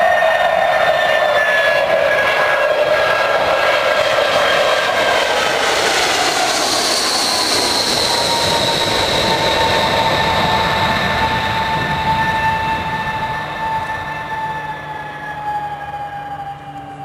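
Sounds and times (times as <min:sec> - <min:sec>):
jet airliner passing overhead: 0:00.0 - 0:17.0.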